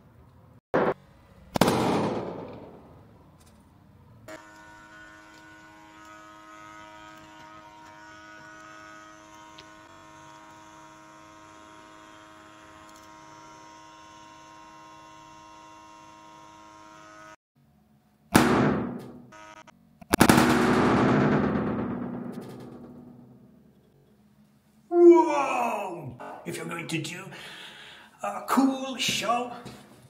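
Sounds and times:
balloon bursting with loud bang: 0:00.8 - 0:02.6, 0:18.3 - 0:19.0
smoke machine humming: 0:04.3 - 0:17.4.

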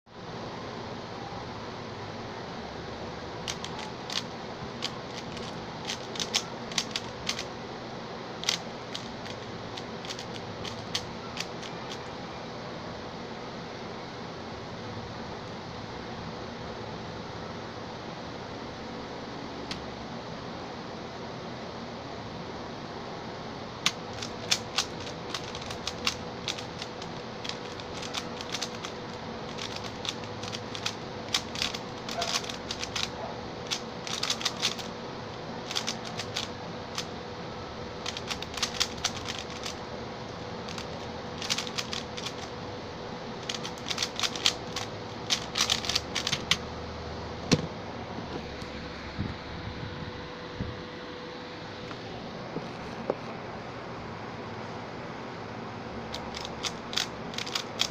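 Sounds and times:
puzzle cube clicking: 0:03.4 - 0:07.5, 0:08.4 - 0:12.1, 0:23.8 - 0:34.9, 0:35.6 - 0:37.1, 0:38.0 - 0:39.8, 0:40.7 - 0:42.5, 0:43.4 - 0:46.6, 0:56.1 - 0:57.9.

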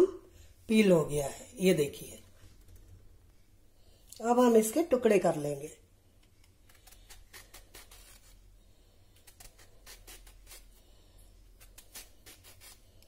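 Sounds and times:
knife cutting mango: 0:06.5 - 0:08.4, 0:09.2 - 0:10.8, 0:11.5 - 0:12.9.

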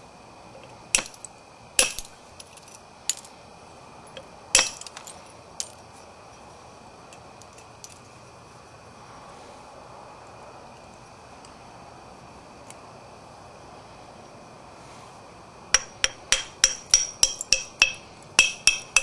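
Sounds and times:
billet striking stone: 0:00.9 - 0:02.2, 0:04.6 - 0:05.0, 0:15.7 - 0:19.0.

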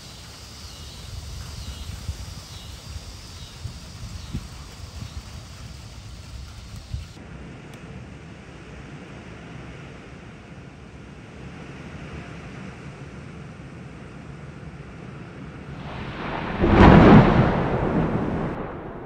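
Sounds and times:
thunder clap and rumble: 0:00.0 - 0:07.2, 0:15.7 - 0:19.0
heavy rain pouring: 0:15.7 - 0:19.0.

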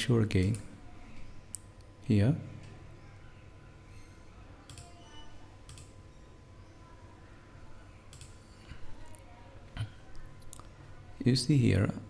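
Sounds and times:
computer mouse clicks: 0:04.6 - 0:05.0, 0:05.7 - 0:06.0, 0:08.1 - 0:08.5.

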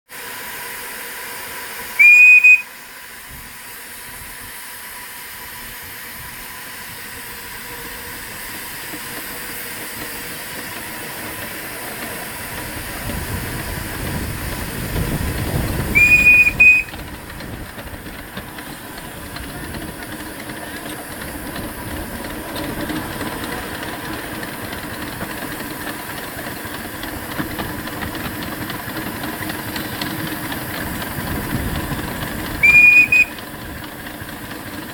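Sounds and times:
locomotive hissing steam: 0:00.1 - 0:34.9
steam locomotive whistle blasts: 0:01.7 - 0:03.1, 0:15.9 - 0:17.0, 0:32.6 - 0:33.4.

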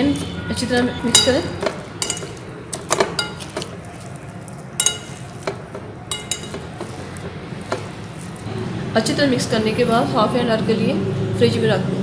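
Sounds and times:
forks clinking on glass bowl: 0:01.1 - 0:04.2, 0:04.8 - 0:08.4.

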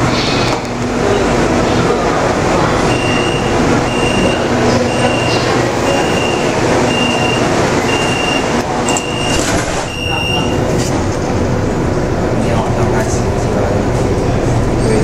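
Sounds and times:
sliding doors closing: 0:00.0 - 0:11.6
subway car running noise: 0:00.0 - 0:15.0
door warning beep: 0:02.9 - 0:10.6.

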